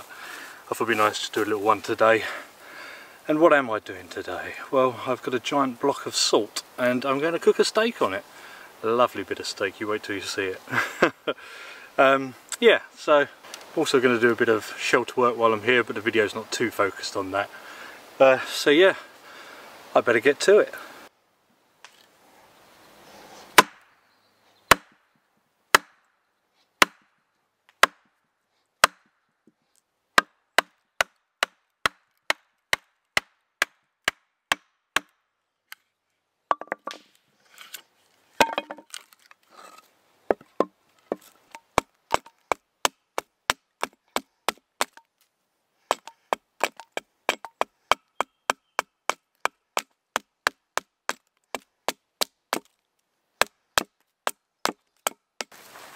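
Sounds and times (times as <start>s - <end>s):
hatchet chopping log: 23.6s - 23.8s, 24.7s - 25.0s, 25.7s - 26.0s, 26.8s - 27.1s, 27.7s - 28.1s, 28.8s - 29.1s, 30.2s - 35.2s, 40.3s - 45.1s, 45.9s - 52.8s, 53.4s - 55.5s
wood cracking and splintering: 38.4s - 39.6s.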